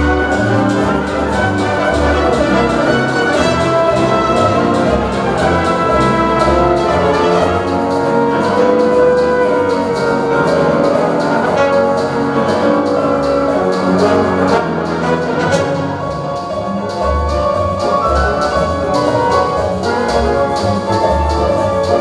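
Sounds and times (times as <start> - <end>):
symphony orchestra playing: 0.0 - 22.0.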